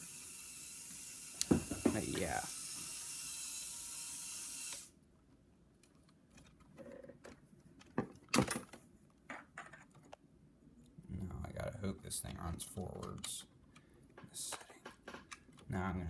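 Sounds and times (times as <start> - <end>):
small electric motor whirring: 0.0 - 5.0
plastic parts clicking: 12.3 - 15.7.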